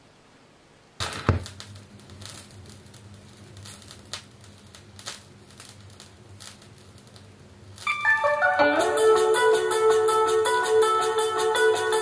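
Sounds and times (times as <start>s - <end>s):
low amplifier hum: 0.0s - 10.9s
stylus setting down on record: 1.0s - 1.6s
vinyl crackle and pops: 1.0s - 12.0s.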